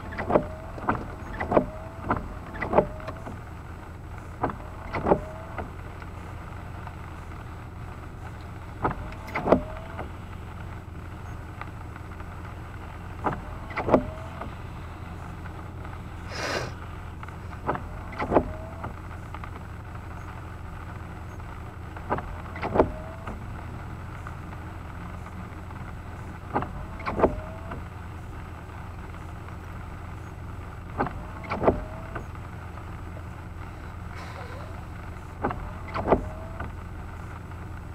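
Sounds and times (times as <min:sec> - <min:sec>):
windshield wipers squealing on glass: 0:00.0 - 0:03.5, 0:04.2 - 0:05.8, 0:08.8 - 0:10.3, 0:13.2 - 0:15.3, 0:17.6 - 0:19.2, 0:21.3 - 0:23.6, 0:26.2 - 0:27.9, 0:30.2 - 0:32.5, 0:33.7 - 0:37.3
low car cabin hum: 0:00.0 - 0:37.9.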